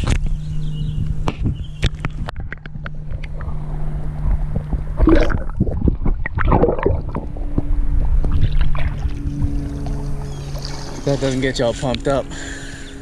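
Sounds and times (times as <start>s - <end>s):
low steady hum: 0.0s - 13.0s
water gurgling and splashing: 4.2s - 11.9s.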